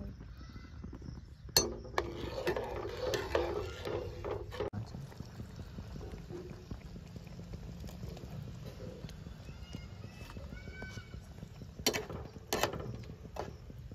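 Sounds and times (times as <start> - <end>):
metal spatula scraping pan: 1.6 - 4.7, 11.8 - 13.5.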